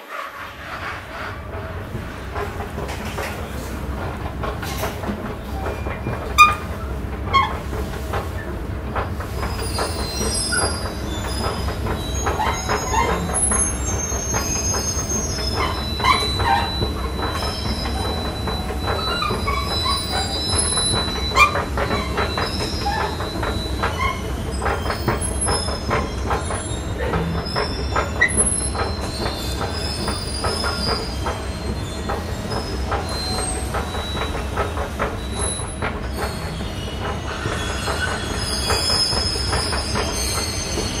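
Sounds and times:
steel wheels squealing: 0.0 - 1.7, 4.6 - 41.0
funicular car rumbling: 0.0 - 41.0
wheels clicking on rails: 0.0 - 41.0.

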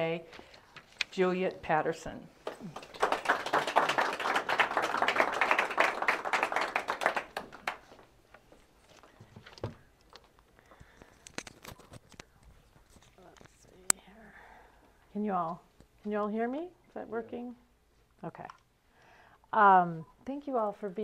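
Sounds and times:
audience applauding: 2.4 - 8.0.

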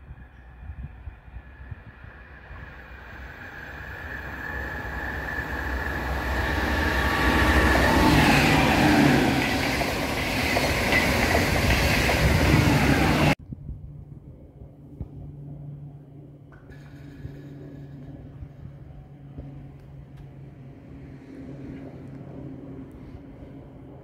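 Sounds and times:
train wheels and air rushing: 0.9 - 13.4.

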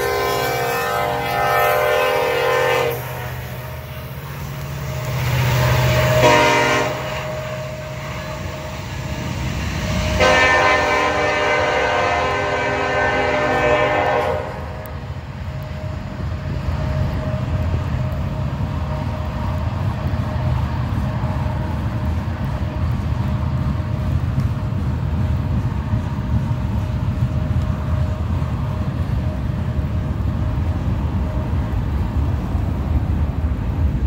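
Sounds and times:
locomotive air horn blasts: 0.0 - 16.0
diesel engines rumbling: 0.0 - 34.0.

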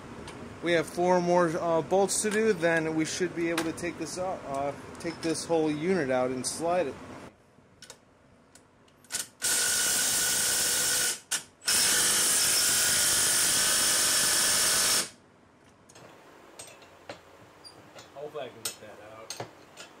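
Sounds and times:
power ratchet running: 9.1 - 15.1.

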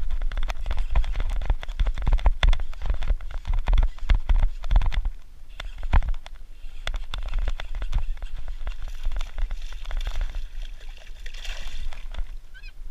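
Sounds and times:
sharp clicks and knocks: 0.0 - 10.4
fish thrashing water splashing: 8.4 - 12.3.

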